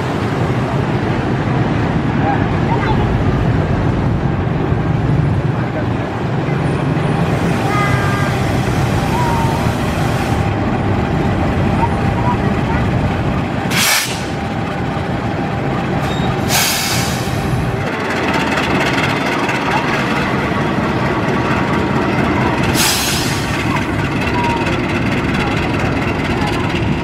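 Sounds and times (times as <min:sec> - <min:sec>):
diesel locomotive running: 0:00.0 - 0:27.0
air hiss bursts: 0:13.7 - 0:14.4, 0:16.4 - 0:17.4, 0:22.8 - 0:23.6.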